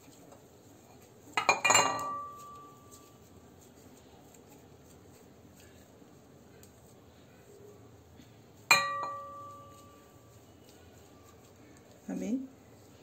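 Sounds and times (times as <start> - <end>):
dough being handled: 0.0 - 13.0
ceramic bowl knocked and ringing: 1.4 - 2.7, 8.7 - 9.8.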